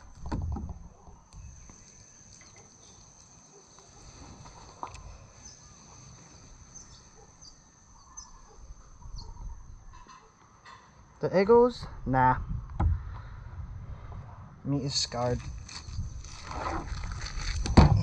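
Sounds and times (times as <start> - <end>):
high-pitched insect trill: 0.9 - 12.7, 14.6 - 18.0
bird chirps: 5.3 - 10.3.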